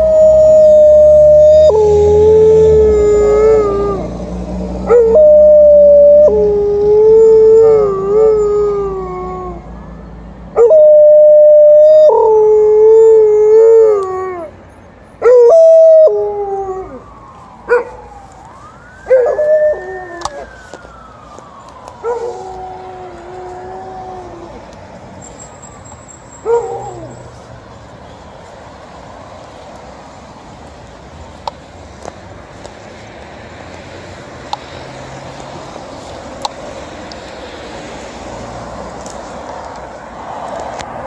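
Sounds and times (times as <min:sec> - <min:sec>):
ambulance siren wailing: 0:00.0 - 0:31.3
dog howling: 0:04.9 - 0:09.6, 0:19.1 - 0:20.5.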